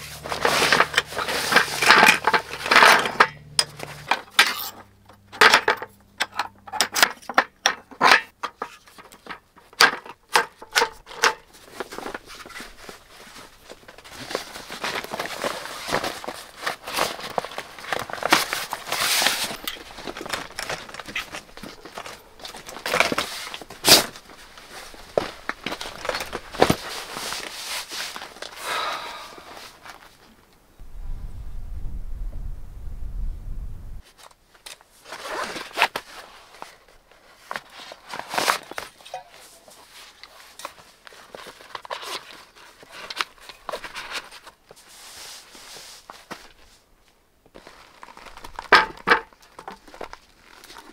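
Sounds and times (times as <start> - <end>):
nylon chair seat rustling: 0.0 - 4.8, 10.8 - 30.3.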